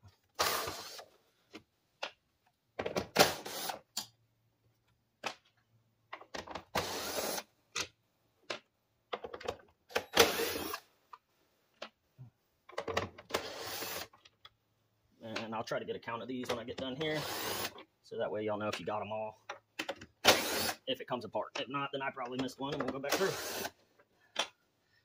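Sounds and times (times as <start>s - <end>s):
cordless drill running: 6.8s - 7.4s, 13.4s - 14.1s, 17.2s - 17.8s, 20.2s - 20.8s, 23.1s - 23.7s.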